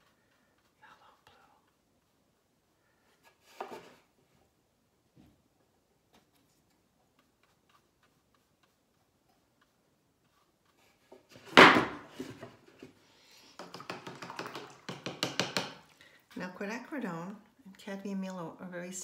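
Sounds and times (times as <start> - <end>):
loud knock: 11.6 - 12.0.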